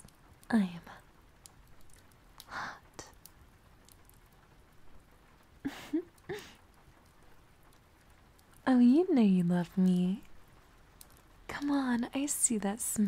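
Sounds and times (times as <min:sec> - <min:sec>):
faint clicks: 0:00.0 - 0:04.7, 0:09.6 - 0:12.1
woman whispering: 0:00.5 - 0:01.0, 0:02.5 - 0:03.2, 0:11.5 - 0:13.0.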